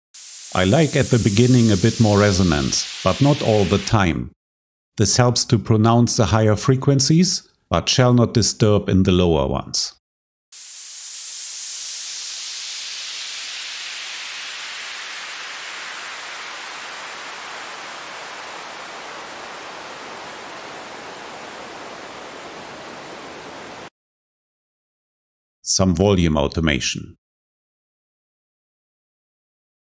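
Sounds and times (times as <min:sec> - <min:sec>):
filtered white noise sweep: 0:00.2 - 0:03.9, 0:10.6 - 0:23.9.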